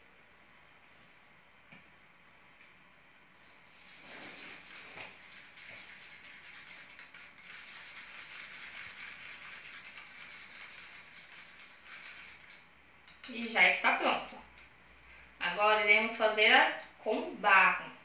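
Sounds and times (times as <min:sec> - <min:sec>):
utensil scraping grounds in plastic cup: 0:03.7 - 0:13.5.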